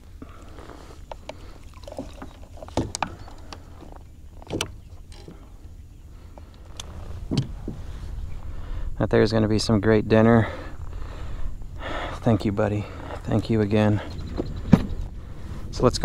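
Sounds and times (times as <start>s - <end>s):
water sloshing against kayak: 0.0s - 8.8s
low rumble: 4.9s - 16.0s.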